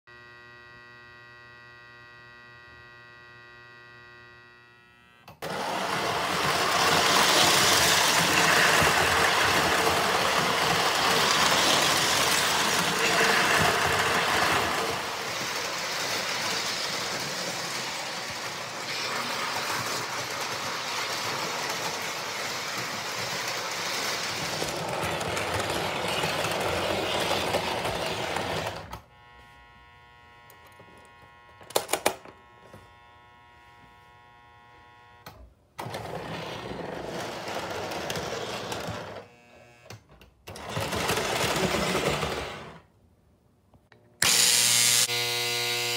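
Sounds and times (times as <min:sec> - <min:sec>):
electric hum: 0:00.1 - 0:05.4, 0:27.7 - 0:35.4
toy train running on track: 0:05.4 - 0:28.9, 0:35.8 - 0:39.3, 0:40.5 - 0:42.9.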